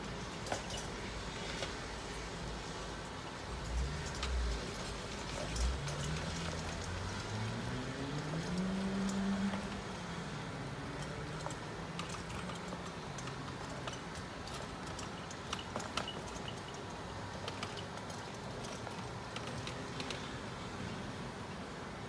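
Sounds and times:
trolley wheels rattling on boards: 0:00.0 - 0:20.4
engine revving: 0:05.5 - 0:11.6.

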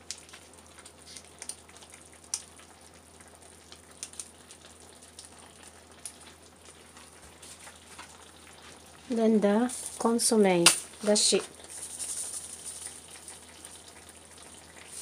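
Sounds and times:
small ticks and pops: 0:00.0 - 0:08.3
stew bubbling in a pan: 0:00.0 - 0:15.0.

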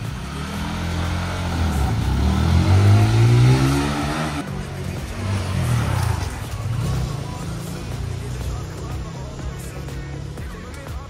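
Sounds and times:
motorcycle engine revving: 0:00.0 - 0:11.0.

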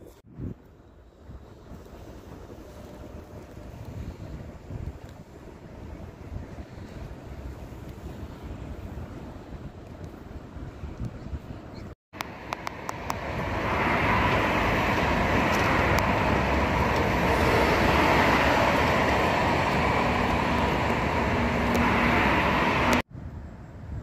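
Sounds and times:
road traffic passing: 0:12.2 - 0:23.1.

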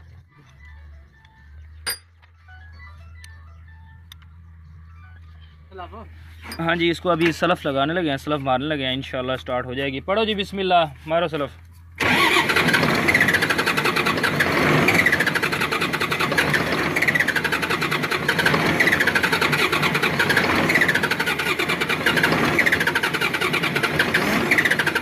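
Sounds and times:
starter motor cranking diesel engine: 0:12.0 - 0:25.0.

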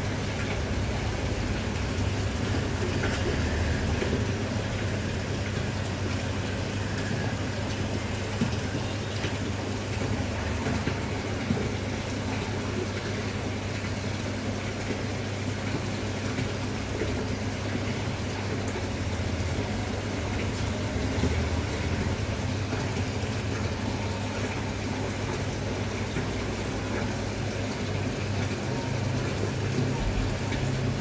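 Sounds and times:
low motor hum: 0:16.9 - 0:31.0.

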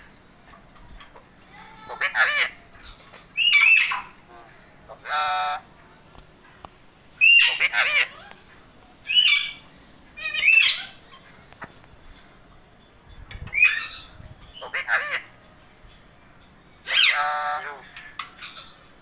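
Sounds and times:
parakeets calling harshly: 0:01.0 - 0:05.8, 0:07.2 - 0:12.1, 0:13.4 - 0:15.6, 0:16.8 - 0:18.9.

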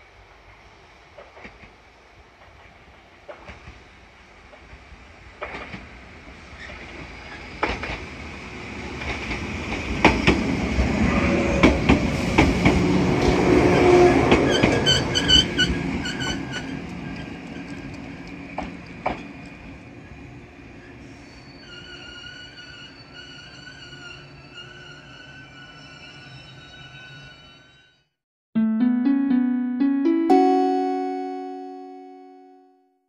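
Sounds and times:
train passing: 0:06.1 - 0:16.0.

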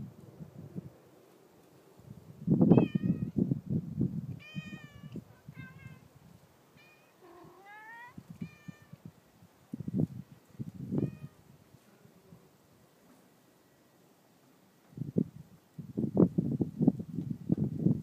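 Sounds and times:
cat meowing: 0:02.7 - 0:03.4, 0:04.4 - 0:06.1, 0:06.8 - 0:09.1, 0:11.0 - 0:11.4.

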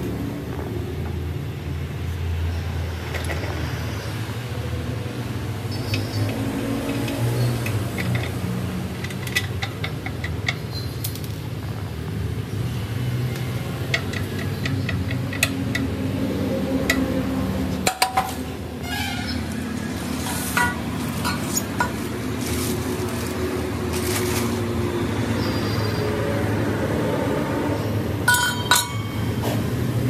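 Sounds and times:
spanner clinking on metal: 0:05.9 - 0:11.4, 0:13.7 - 0:16.0, 0:28.3 - 0:29.4.

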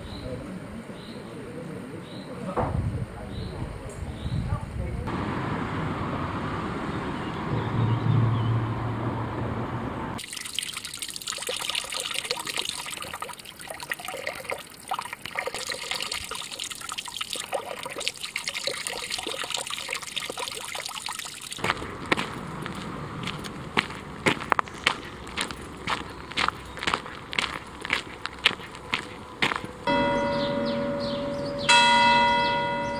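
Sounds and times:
low engine hum: 0:04.8 - 0:10.2, 0:21.6 - 0:32.9
traffic rush: 0:05.0 - 0:10.2, 0:21.5 - 0:32.9
water splashing into trough: 0:10.2 - 0:22.9.

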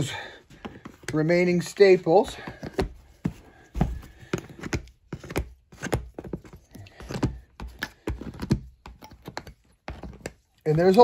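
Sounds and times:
tool scraping hard plastic: 0:02.2 - 0:11.0.

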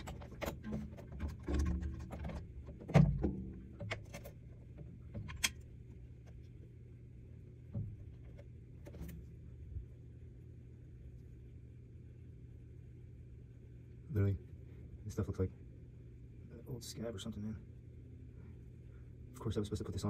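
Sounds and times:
drum hardware knocks and clicks: 0:00.0 - 0:04.3
steady low hum: 0:00.0 - 0:20.0.

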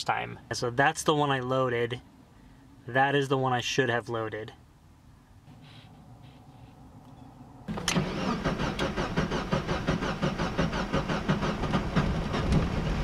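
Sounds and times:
starter motor cranking engine: 0:07.7 - 0:13.0.

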